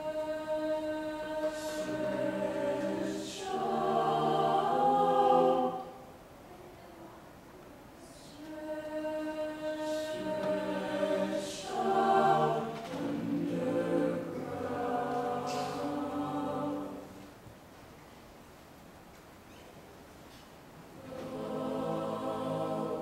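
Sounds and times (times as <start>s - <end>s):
choir singing sustained chords: 0.0s - 6.4s, 8.0s - 17.4s, 21.0s - 23.0s.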